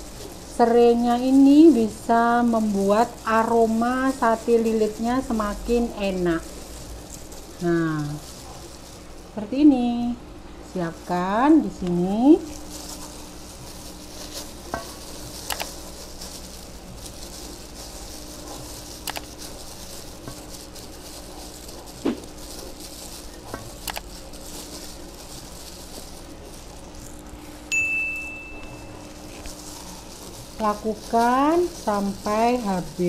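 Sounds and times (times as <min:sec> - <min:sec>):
steady low hum: 0:00.0 - 0:33.0
high bell ding: 0:27.7 - 0:29.1.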